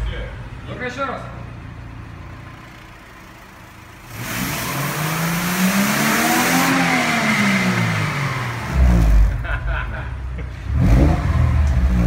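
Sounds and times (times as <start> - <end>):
car engine idling: 0.0 - 6.0
car engine revving: 2.3 - 9.8, 10.5 - 12.0.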